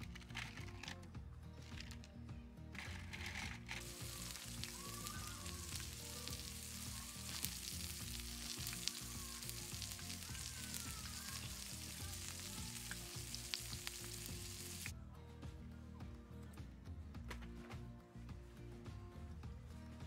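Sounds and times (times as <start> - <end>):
steak sizzling on griddle pan: 3.8 - 14.9.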